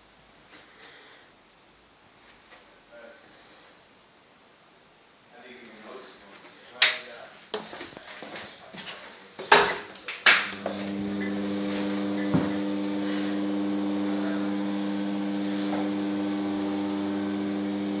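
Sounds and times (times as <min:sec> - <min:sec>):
electrical mains hum: 0:09.8 - 0:18.0.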